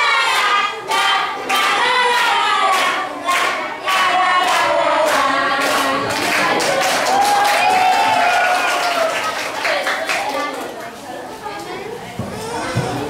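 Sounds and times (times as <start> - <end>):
children singing: 0.0 - 6.8.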